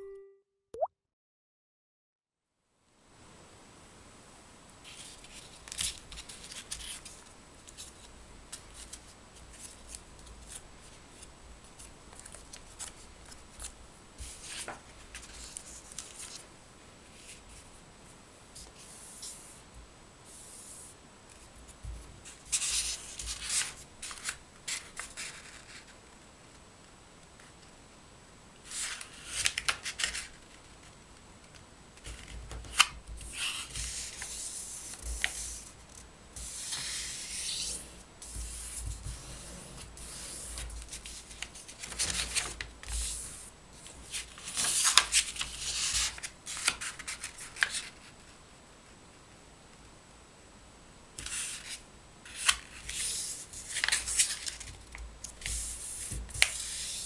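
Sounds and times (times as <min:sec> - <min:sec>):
paper rustling and crinkling: 0:04.9 - 0:16.5, 0:22.2 - 0:26.0, 0:28.7 - 0:31.0, 0:32.0 - 0:48.3, 0:51.2 - 0:57.0.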